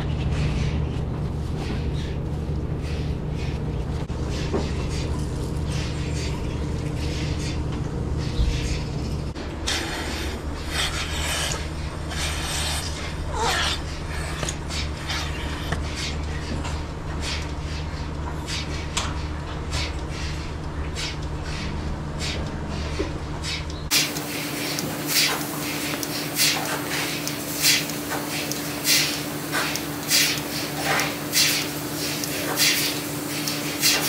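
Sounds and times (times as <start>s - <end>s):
milking system hum: 0.0s - 34.0s
rhythmic pulsator hiss: 0.0s - 34.0s
air hissing and sucking: 2.8s - 13.2s, 19.7s - 34.0s.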